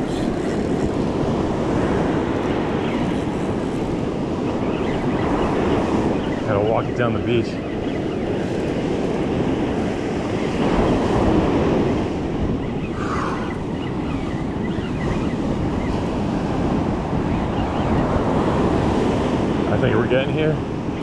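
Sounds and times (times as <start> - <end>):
wind buffeting microphone: 0.0 - 21.0
ocean surf on beach: 8.7 - 14.5, 15.5 - 21.0.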